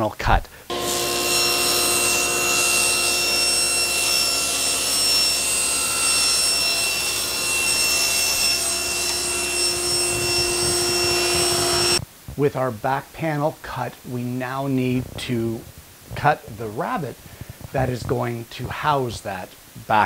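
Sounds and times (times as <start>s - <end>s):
table saw cutting wood: 0.7s - 12.0s.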